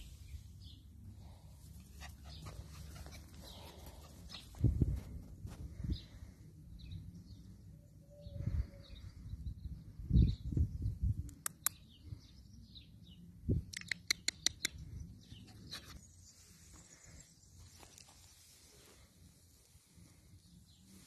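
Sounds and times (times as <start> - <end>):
birds chirping: 0.2 - 5.2.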